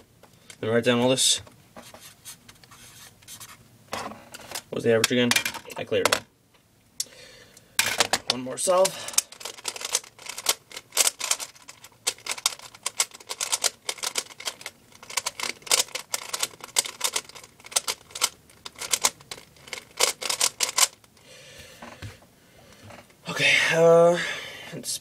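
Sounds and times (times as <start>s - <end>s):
puzzle cube clicking: 9.4s - 21.0s.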